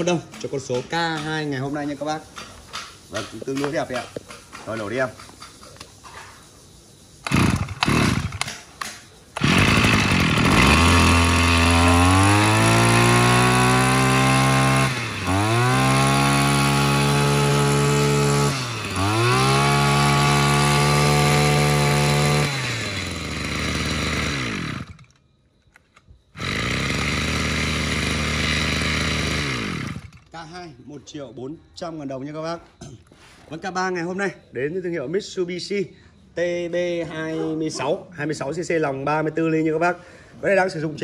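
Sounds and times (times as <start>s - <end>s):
brush cutter engine revving: 7.2s - 25.2s, 26.4s - 30.4s.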